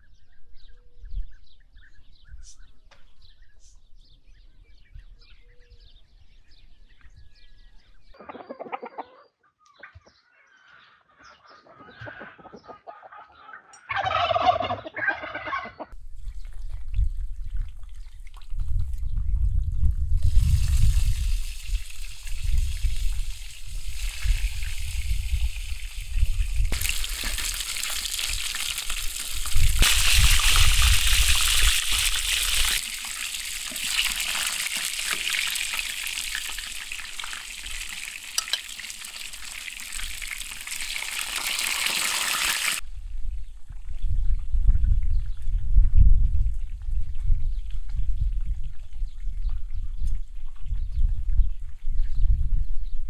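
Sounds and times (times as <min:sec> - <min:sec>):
fowl calling: 0:08.2 - 0:15.9.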